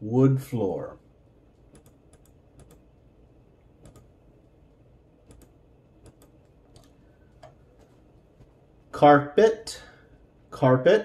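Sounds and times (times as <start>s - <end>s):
computer clicks: 1.6s - 2.9s, 3.8s - 4.2s, 5.2s - 7.6s.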